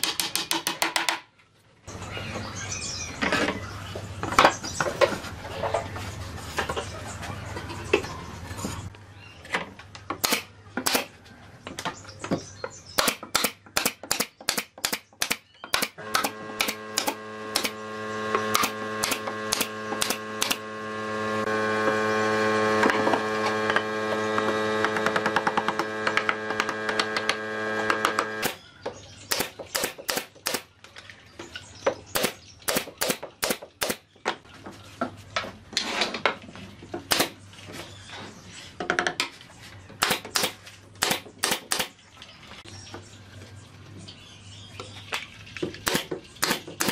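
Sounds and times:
low electrical hum: 0:15.5 - 0:46.9
power tool motor running: 0:15.8 - 0:28.6.

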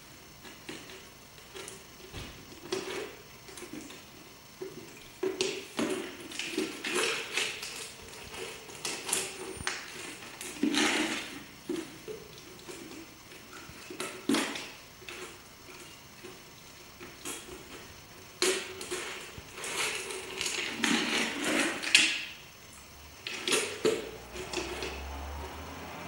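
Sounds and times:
plastic jar scraping on concrete: 0:18.8 - 0:22.1.

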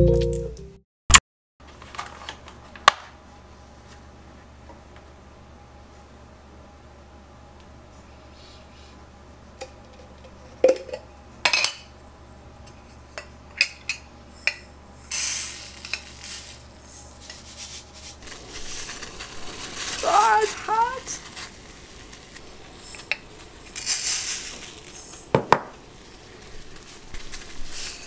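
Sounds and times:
hissing rustling noise: 0:15.1 - 0:28.0.

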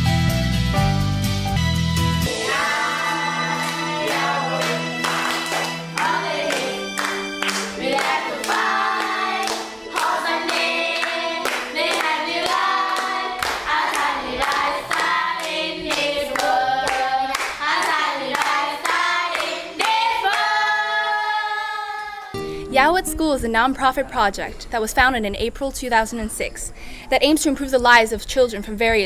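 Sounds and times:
rhythmic hand clapping: 0:02.3 - 0:21.2
group singing: 0:02.3 - 0:22.4.

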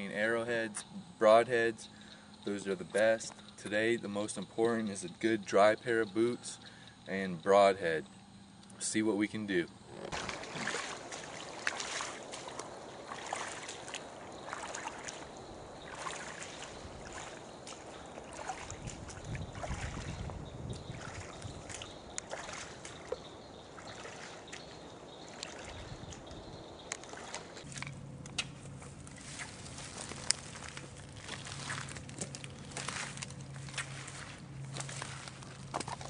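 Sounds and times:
footsteps splashing in water: 0:10.0 - 0:36.0.

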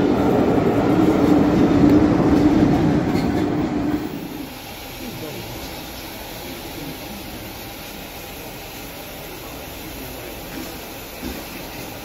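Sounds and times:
steam hissing: 0:00.0 - 0:12.0.

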